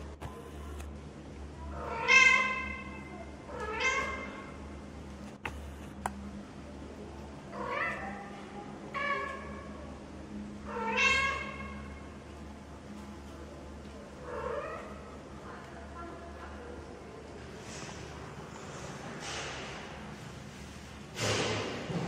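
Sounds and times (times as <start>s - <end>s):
cat meowing: 1.8s - 4.3s, 10.7s - 11.8s.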